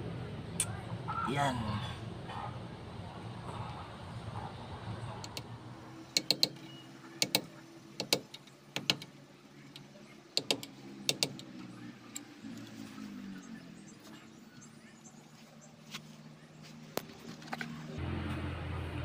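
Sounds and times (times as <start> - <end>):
sharp metal taps: 6.1 - 12.3.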